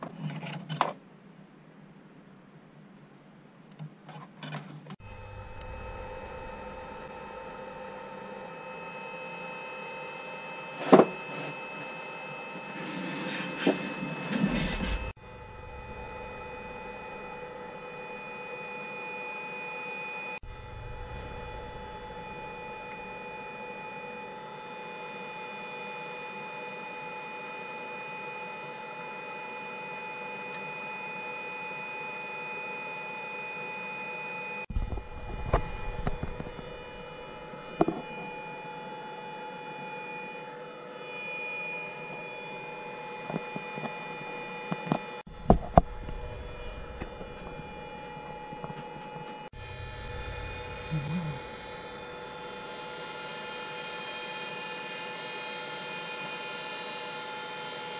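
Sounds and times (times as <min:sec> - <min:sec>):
hot-air soldering gun fan whining: 0:04.4 - 0:57.9.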